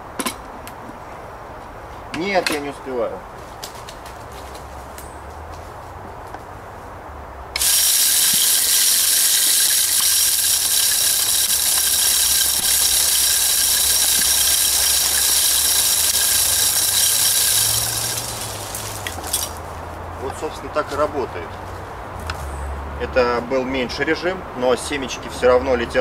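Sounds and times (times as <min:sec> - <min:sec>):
feeder motor whining: 0:07.6 - 0:19.6.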